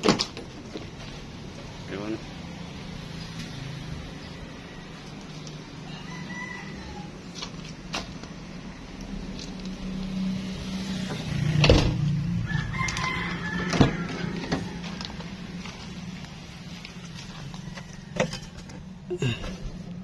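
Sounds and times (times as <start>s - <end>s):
rooster crowing: 4.6s - 7.3s, 12.2s - 15.5s, 17.2s - 18.7s.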